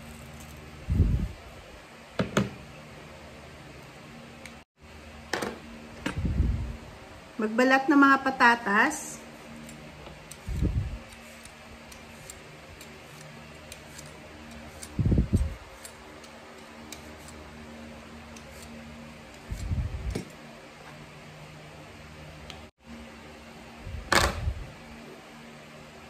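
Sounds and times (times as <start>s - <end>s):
steady mechanical hum: 0.0s - 26.0s
peeler scraping potato: 9.4s - 20.2s.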